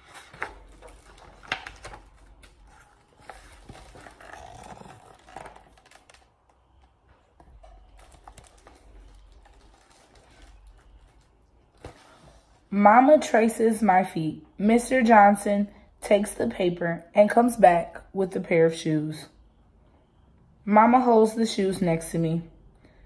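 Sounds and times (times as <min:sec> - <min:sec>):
paper pages rustling: 0:00.0 - 0:12.6.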